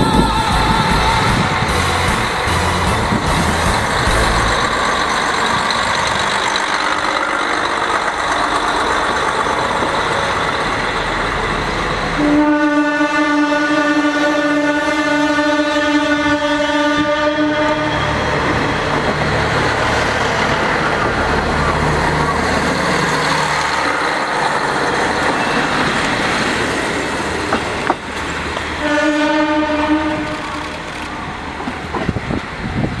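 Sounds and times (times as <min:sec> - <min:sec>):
rolling wheel noise: 0:00.0 - 0:11.6
train engine rumble: 0:00.0 - 0:33.0
train horn: 0:12.2 - 0:18.3, 0:28.8 - 0:30.9.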